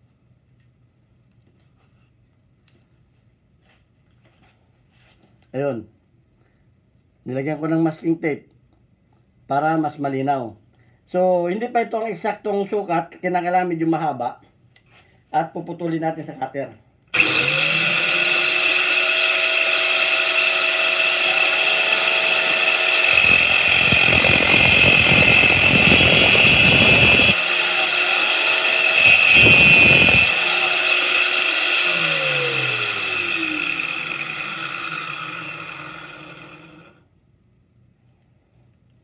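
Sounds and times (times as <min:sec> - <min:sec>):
angle grinder whining: 0:17.2 - 0:37.0
disc grinding metal: 0:17.2 - 0:37.0.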